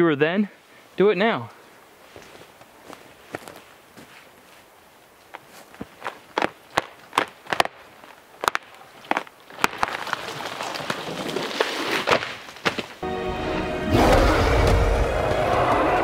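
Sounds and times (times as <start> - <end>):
tree creaking and breaking: 5.9 - 13.0, 14.0 - 16.0
tree trunk cracking and splintering: 6.0 - 13.0
loud music: 13.0 - 16.0.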